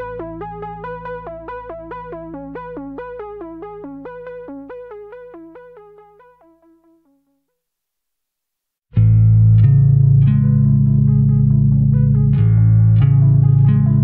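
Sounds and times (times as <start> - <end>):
held low synth tone: 0.0 - 7.0
synthesizer repeating pattern: 0.0 - 7.0.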